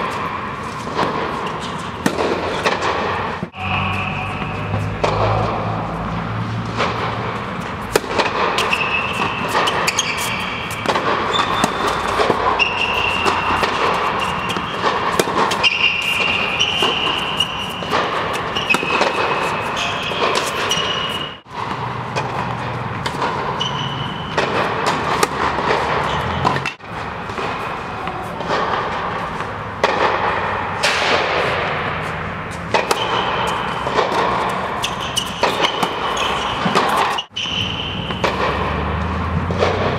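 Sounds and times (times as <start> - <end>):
steady background noise: 0.0 - 39.9
tennis balls struck and bouncing: 0.0 - 39.9.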